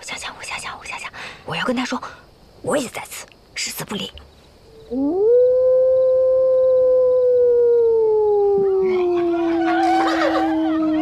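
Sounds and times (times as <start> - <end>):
man howling like a wolf: 4.7 - 11.0.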